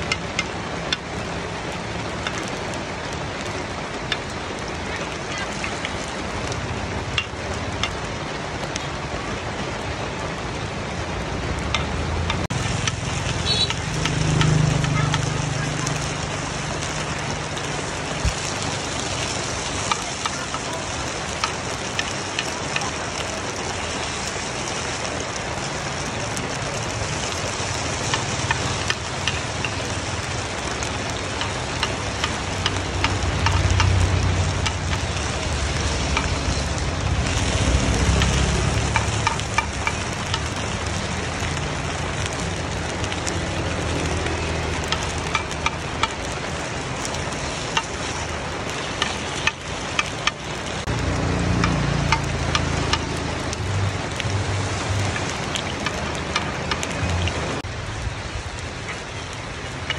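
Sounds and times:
batter sizzling in a pan: 0:12.5 - 0:57.7.

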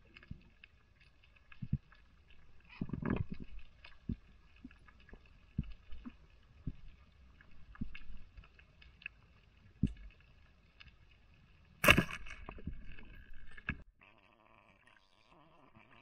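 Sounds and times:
speargun firing crack underwater: 0:11.8 - 0:12.7.

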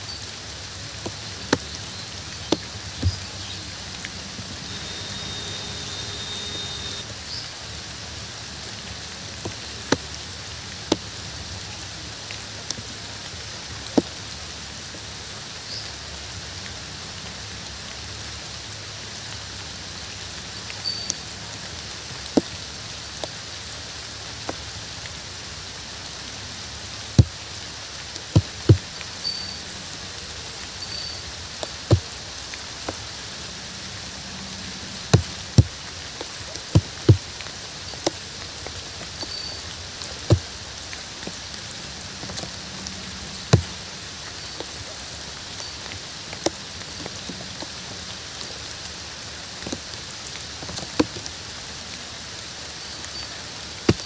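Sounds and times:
large raindrops tapping: 0:00.0 - 0:54.0
steady rain: 0:00.0 - 0:54.0.

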